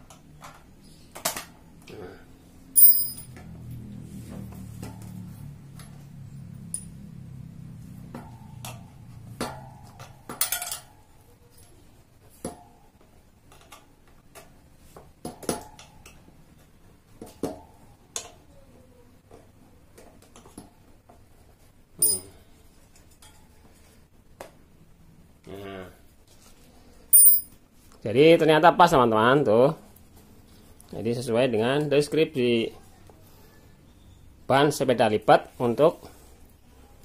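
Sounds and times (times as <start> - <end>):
bicycle rim and spokes clinking: 2.8 - 3.6, 22.0 - 22.4, 27.1 - 27.6.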